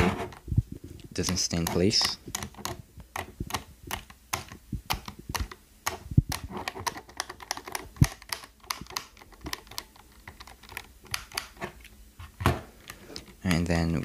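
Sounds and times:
keyboard switches clicking: 0:01.2 - 0:11.6.

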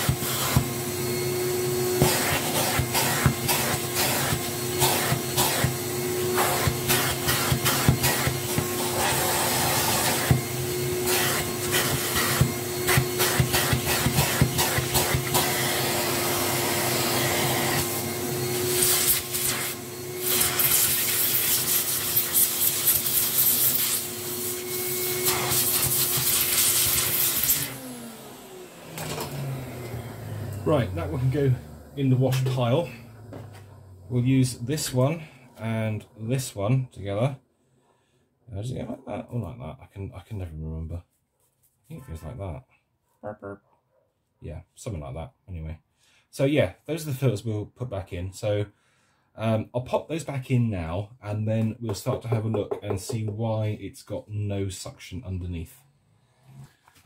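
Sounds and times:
vacuum cleaner running: 0:00.0 - 0:36.8, 0:55.8 - 0:57.0.

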